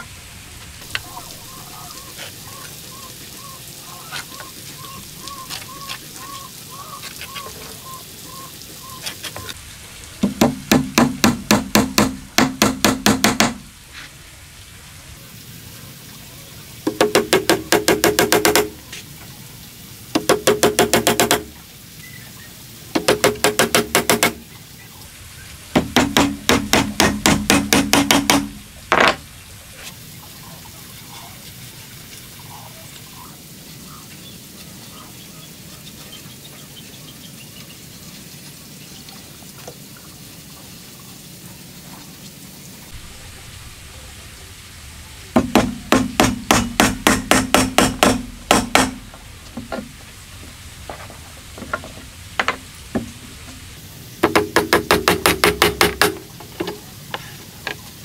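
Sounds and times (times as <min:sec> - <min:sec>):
hammer driving nails into wood: 0:10.2 - 0:13.6, 0:25.8 - 0:29.2, 0:45.4 - 0:49.0, 0:54.2 - 0:56.3
scattered knocks: 0:10.2 - 0:13.6, 0:16.9 - 0:18.8, 0:23.0 - 0:24.4, 0:25.8 - 0:29.2, 0:45.4 - 0:50.0, 0:51.6 - 0:53.1, 0:54.2 - 0:56.8.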